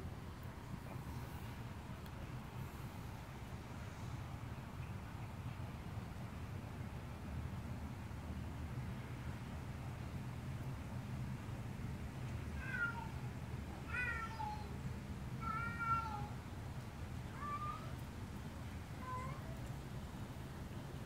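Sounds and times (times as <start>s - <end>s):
cat meowing: 12.6s - 13.2s, 13.9s - 14.8s, 15.4s - 16.4s.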